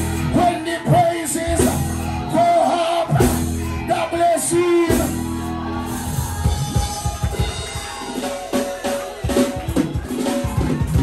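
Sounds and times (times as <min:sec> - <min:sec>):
drum kit beating: 0:00.0 - 0:02.3, 0:03.1 - 0:11.0.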